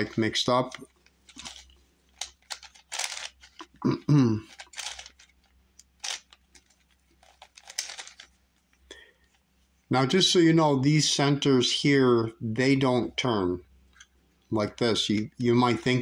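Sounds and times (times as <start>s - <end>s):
plastic puzzle clicking: 0.7s - 3.8s, 4.5s - 8.3s
man's voice: 14.5s - 16.0s.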